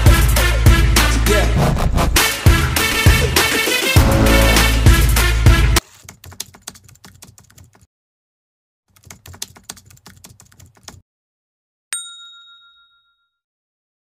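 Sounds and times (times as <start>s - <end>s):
notification bell ding: 12.0s - 13.4s.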